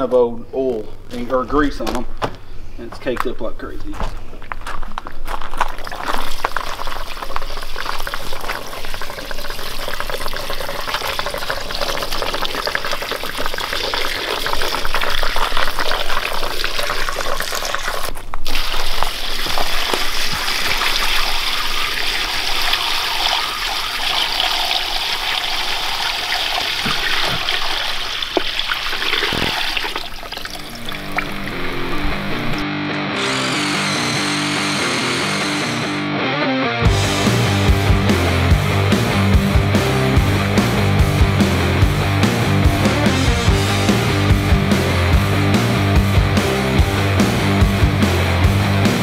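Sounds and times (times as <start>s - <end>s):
fuel pouring into plastic tub: 5.5s - 31.5s.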